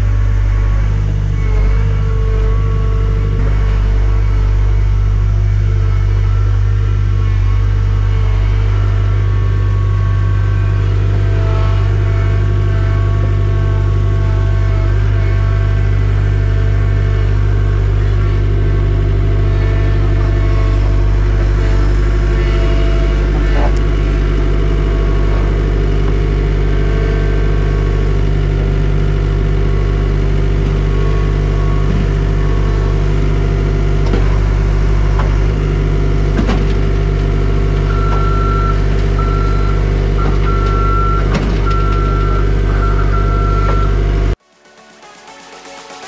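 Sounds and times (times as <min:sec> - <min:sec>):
heavy vehicle engine running: 0:00.0 - 0:46.0
reversing alarm beeps: 0:37.9 - 0:44.0.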